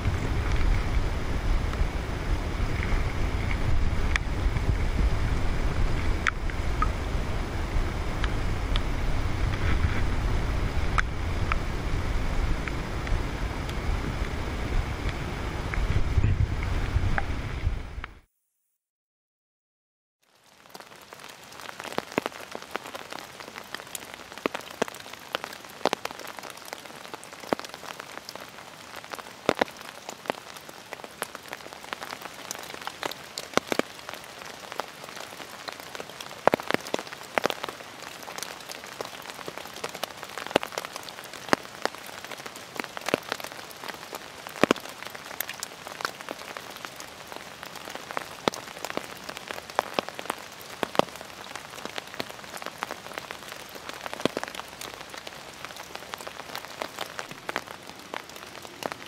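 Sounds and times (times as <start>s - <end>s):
raindrops tapping on umbrella: 0.0s - 18.2s, 20.2s - 59.0s
rain falling: 0.0s - 18.3s, 20.2s - 59.0s.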